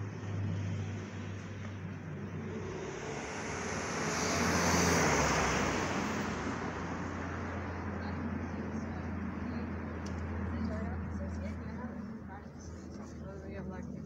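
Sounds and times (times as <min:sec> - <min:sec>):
vehicle driving past: 0:00.0 - 0:09.9
low traffic hum: 0:00.0 - 0:14.0.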